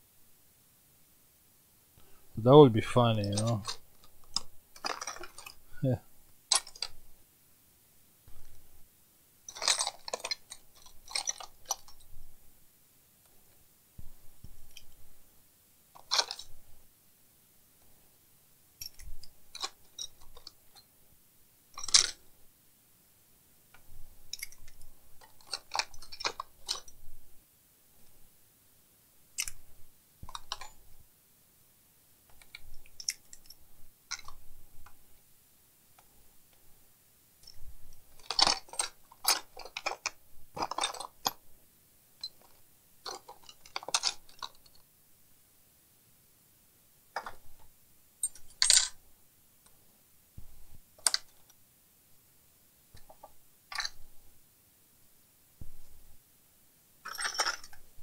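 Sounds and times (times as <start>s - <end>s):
small screwdrivers clattering: 3.2s - 5.6s, 6.5s - 7.0s, 9.5s - 12.0s, 16.0s - 16.6s, 18.8s - 20.9s, 21.8s - 22.2s, 23.8s - 27.0s, 29.4s - 29.6s, 30.2s - 30.8s, 32.3s - 34.4s, 38.2s - 41.4s, 42.2s - 44.8s, 47.2s - 47.5s, 48.2s - 49.0s, 51.0s - 51.5s, 53.0s - 54.0s, 57.0s - 57.9s.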